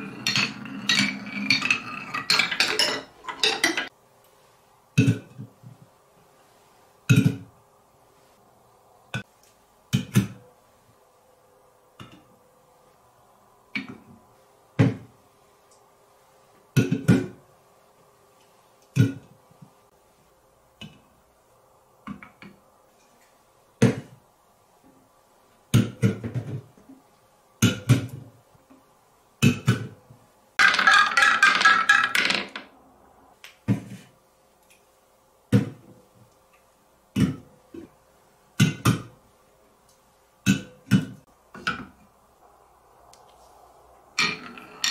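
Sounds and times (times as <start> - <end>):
cans clattering: 0.0 - 3.9, 30.6 - 32.7
metal cans clinking when stacked: 0.0 - 3.9, 30.6 - 32.6.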